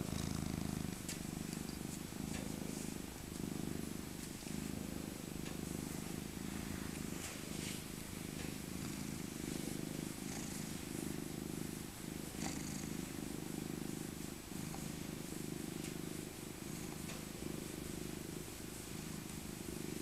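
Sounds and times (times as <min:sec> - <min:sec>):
cat purring: 0:00.0 - 0:20.0.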